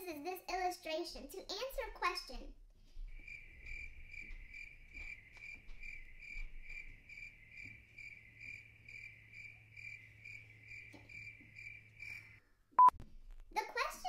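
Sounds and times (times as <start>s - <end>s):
crickets chirping: 3.1s - 12.4s.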